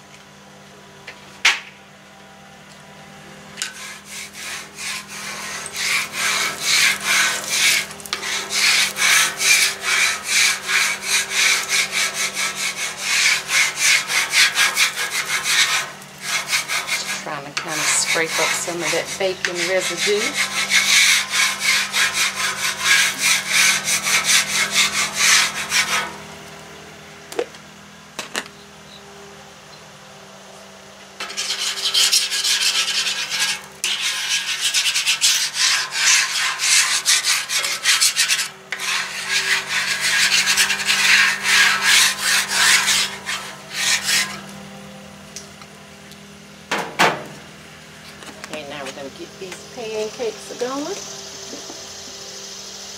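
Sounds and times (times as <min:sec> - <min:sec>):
spatula scraping metal griddle: 0:03.6 - 0:26.2, 0:31.2 - 0:44.5.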